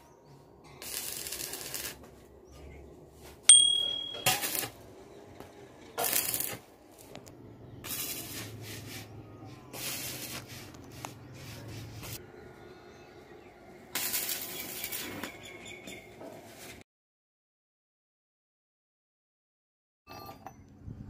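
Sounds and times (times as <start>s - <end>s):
welding sizzle: 0.8s - 2.1s, 4.3s - 4.8s, 6.0s - 9.0s, 9.7s - 12.2s, 13.9s - 15.4s
sharp click with ringing ding: 3.5s - 4.6s.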